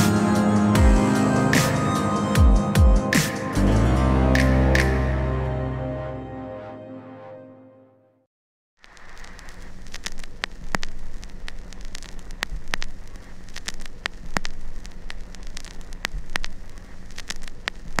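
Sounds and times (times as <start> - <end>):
crackling static hiss: 8.8 - 18.0.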